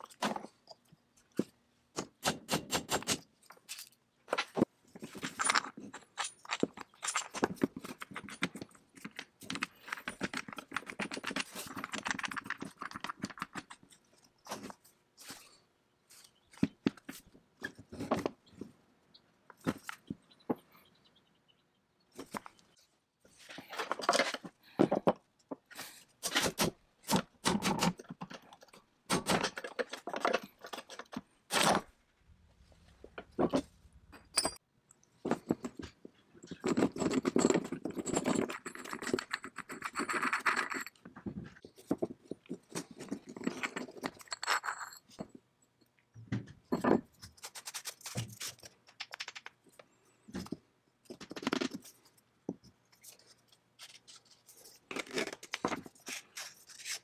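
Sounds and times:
metal parts clicking and clinking: 3.5s - 14.1s, 34.1s - 34.6s, 35.4s - 41.0s, 41.9s - 45.3s.

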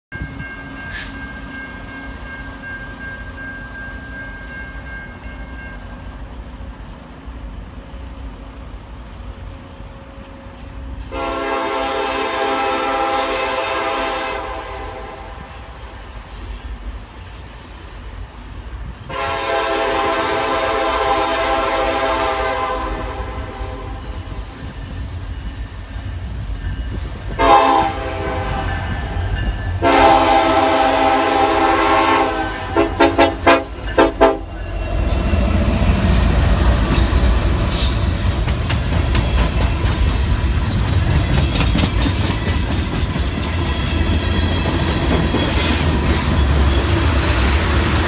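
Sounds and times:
locomotive air horn blasts: 11.0s - 15.6s, 19.1s - 24.2s, 27.4s - 28.9s, 29.8s - 34.6s.

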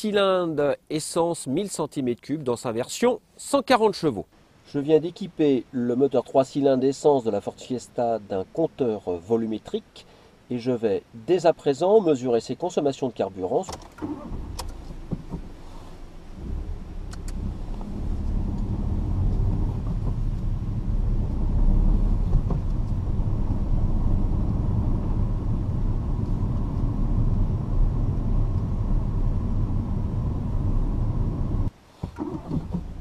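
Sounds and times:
road rumble: 12.4s - 33.0s
car engine at low revs: 14.0s - 33.0s.

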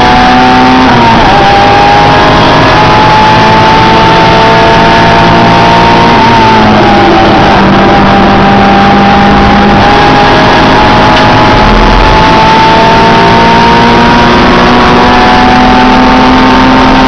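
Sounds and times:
car engine at high revs: 0.0s - 17.0s.

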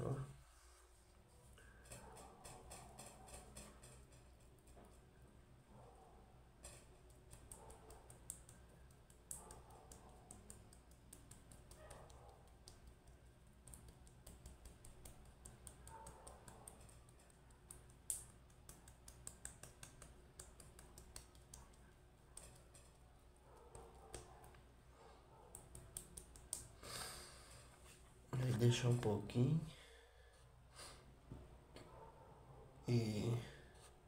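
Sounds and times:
fingertips making wet clicks on skin: 7.1s - 22.7s, 25.5s - 26.8s.

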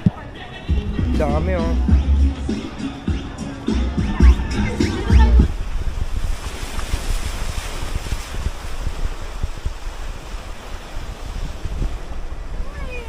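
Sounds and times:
wind buffeting microphone: 0.0s - 13.0s
small sea waves breaking: 4.8s - 13.0s.

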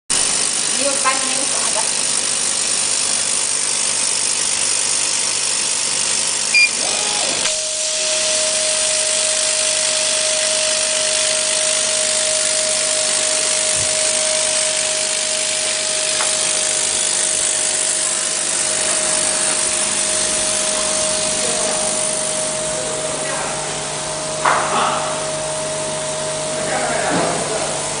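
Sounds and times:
steady machine whine: 0.1s - 28.0s
laser cutter machine hiss: 0.2s - 28.0s
short high beep: 6.5s - 6.9s.

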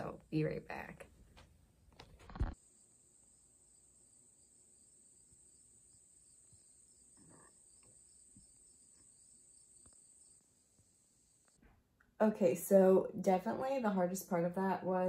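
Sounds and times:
insect chirping: 2.6s - 11.6s
insects trilling: 2.7s - 11.6s.

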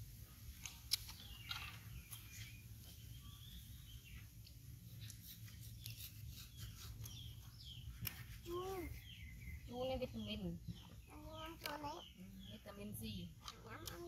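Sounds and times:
clicks and smacks of eating: 0.6s - 2.5s.

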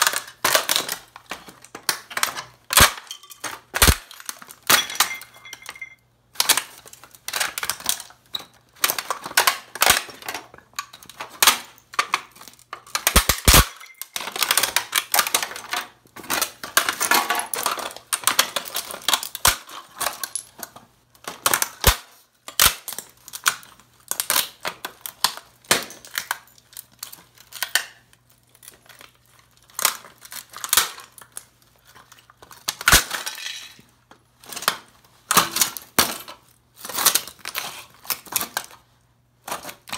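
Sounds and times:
boots crushing plastic and electronics: 0.0s - 5.6s.

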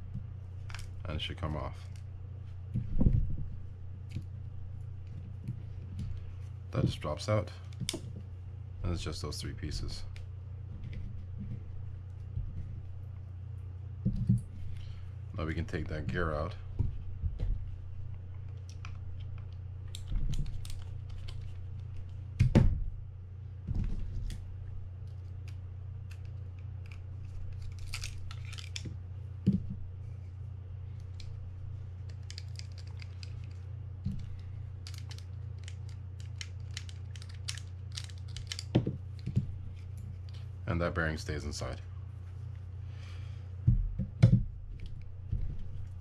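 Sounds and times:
steady low hum: 0.0s - 46.0s
small reel parts handled: 0.6s - 1.0s, 25.0s - 29.6s, 31.0s - 40.5s.

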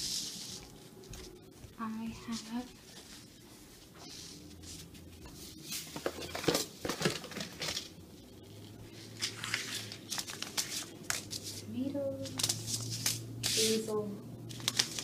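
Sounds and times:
shopping items rustling and knocking: 5.6s - 7.9s
paper seed packets rustling: 9.0s - 13.8s, 14.5s - 15.0s.

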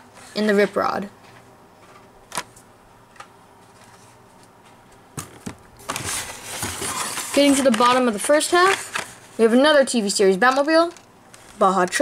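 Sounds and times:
cardboard rustling and clatter: 5.2s - 9.9s.

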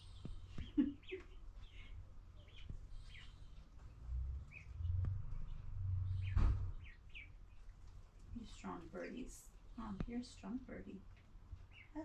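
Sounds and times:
chicks cheeping: 0.0s - 10.6s, 11.5s - 12.0s
low rumble: 3.8s - 7.5s.

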